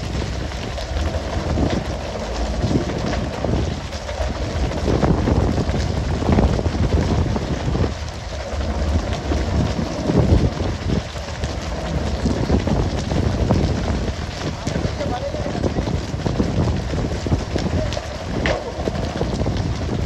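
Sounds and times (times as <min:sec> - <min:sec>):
boat engine rumble: 0:00.0 - 0:20.0
water spray and splashing: 0:00.0 - 0:20.0
wind on microphone: 0:00.0 - 0:20.0.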